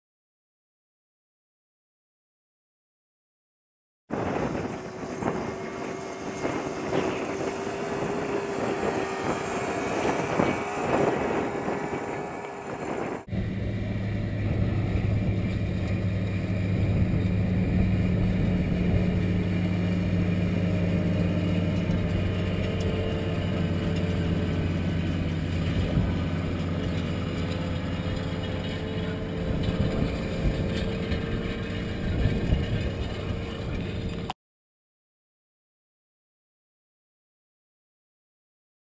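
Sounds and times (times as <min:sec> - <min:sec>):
tractor engine working under load: 0:04.2 - 0:34.4.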